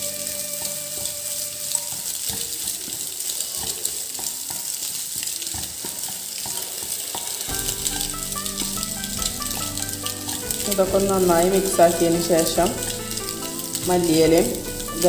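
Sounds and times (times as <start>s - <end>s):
background music: 0.0s - 1.9s, 7.5s - 15.0s
filling sizzling in oil: 0.0s - 15.0s.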